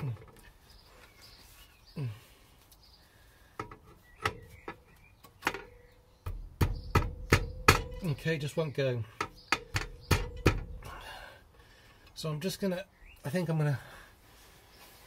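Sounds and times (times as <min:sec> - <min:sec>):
metal clicks and knocks: 0:03.6 - 0:08.5, 0:09.1 - 0:10.9.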